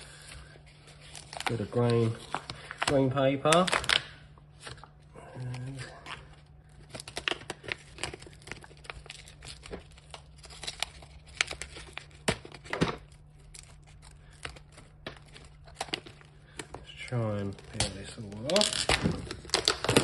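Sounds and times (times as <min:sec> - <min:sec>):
tape peeling and tearing: 0:17.6 - 0:20.0.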